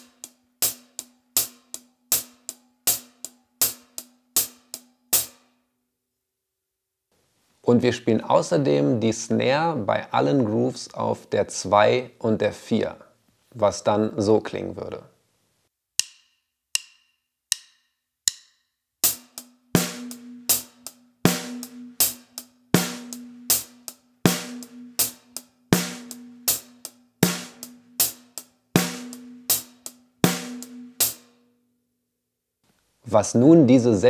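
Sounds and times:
drum kit playing a groove: 0.0 - 5.4, 19.0 - 31.4.

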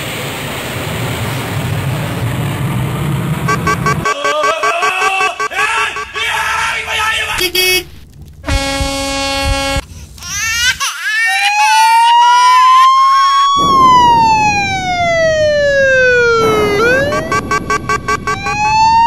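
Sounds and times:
vehicle horn: 3.5 - 6.7, 7.3 - 9.8, 16.4 - 18.7
wailing siren: 3.5 - 6.7, 11.2 - 19.0
steady rushing noise: 13.6 - 19.0.

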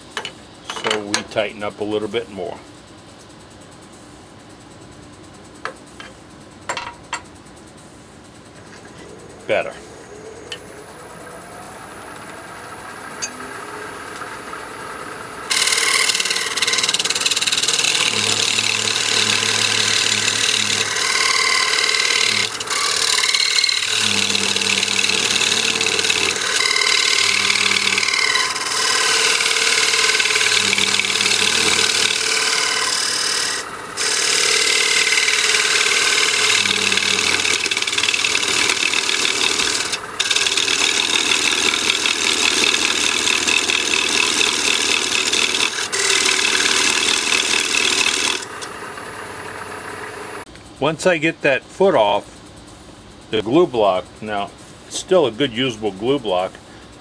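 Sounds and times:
lathe hum: 8.6 - 50.5
turning tool scraping wood: 15.5 - 48.7.

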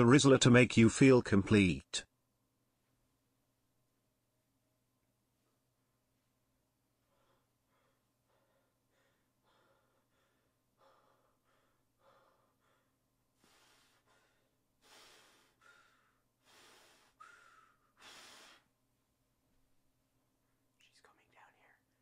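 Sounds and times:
person breathing: 7.0 - 18.7.

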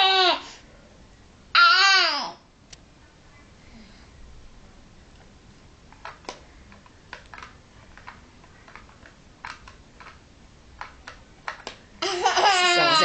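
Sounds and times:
plastic toy clicking and tapping: 6.0 - 10.2, 10.8 - 11.8.

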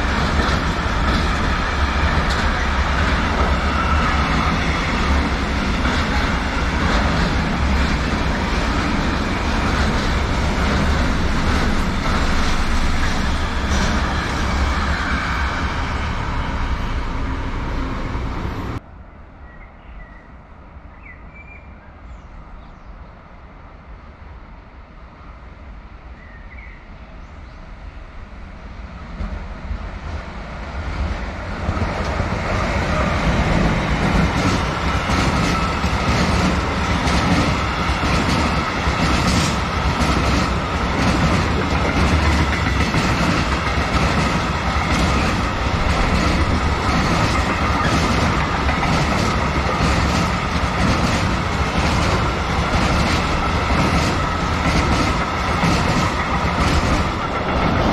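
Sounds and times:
train wheels clacking on rails: 0.0 - 16.7, 31.0 - 57.9
train rumbling past: 0.0 - 57.9.

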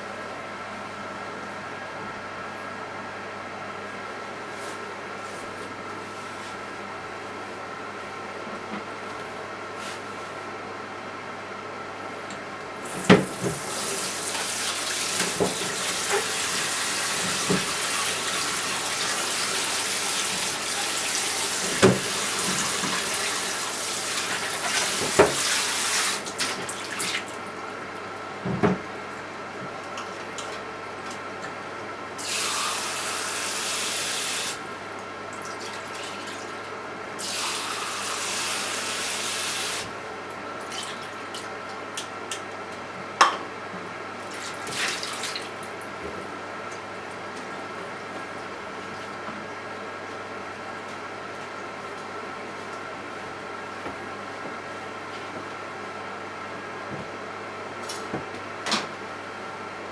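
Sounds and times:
microwave oven humming: 0.0 - 59.9
tap water running into sink: 12.9 - 27.2.

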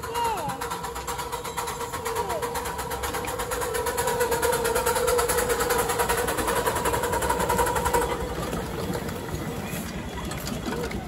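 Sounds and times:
miniature train clattering past: 0.0 - 11.0.

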